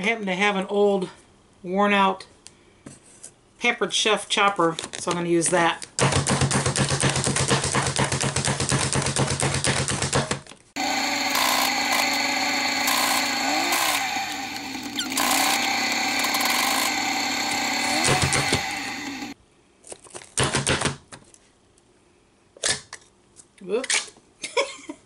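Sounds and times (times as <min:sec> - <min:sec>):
food chopper clicking: 0:10.8 - 0:19.4.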